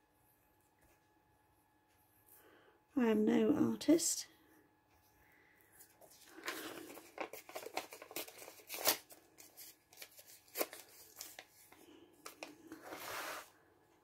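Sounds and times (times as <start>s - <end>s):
paper rustling and crackling: 6.0s - 13.5s.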